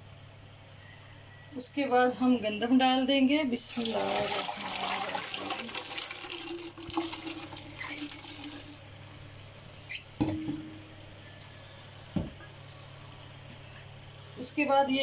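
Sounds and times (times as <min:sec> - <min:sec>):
water and grains pouring into metal pot: 0:03.7 - 0:08.7.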